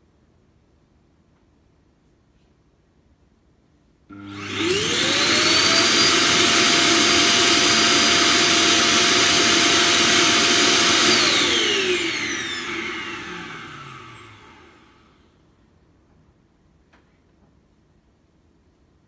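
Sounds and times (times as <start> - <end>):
suction fan whining: 4.1 - 15.3.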